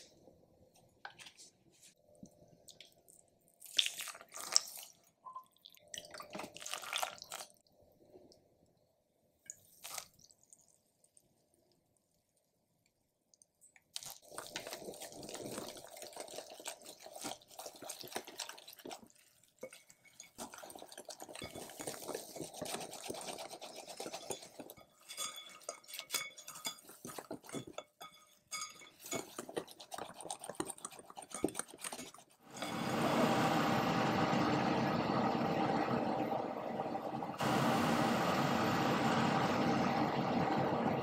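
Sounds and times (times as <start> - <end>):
whisk beating batter in glass bowl: 14.6 - 34.3.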